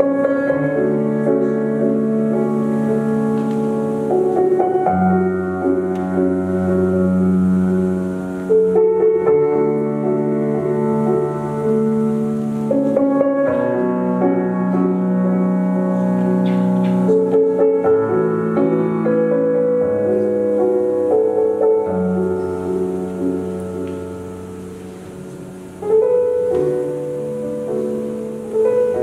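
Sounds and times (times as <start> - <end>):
slow piano music: 0.0 - 29.0.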